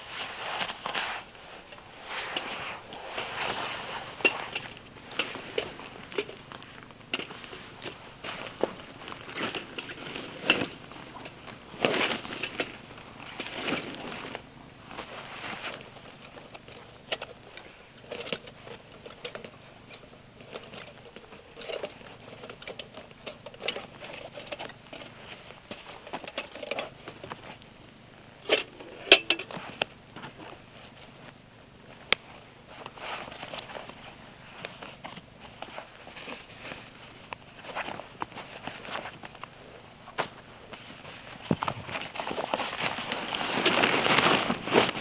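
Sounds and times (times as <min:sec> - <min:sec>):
rustling fabric and straps: 0:00.0 - 0:45.0
small clinks and knocks: 0:04.2 - 0:14.4, 0:15.7 - 0:27.5, 0:28.4 - 0:30.6.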